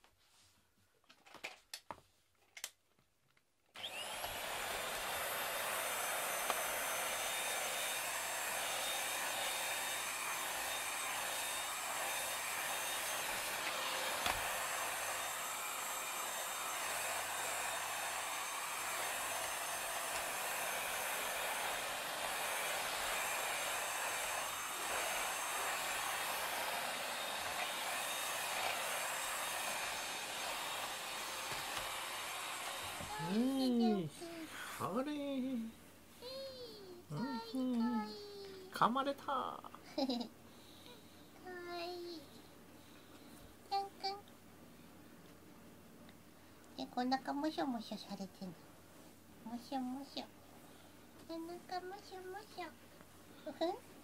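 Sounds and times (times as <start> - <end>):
vacuum cleaner motor running: 3.8 - 35.1.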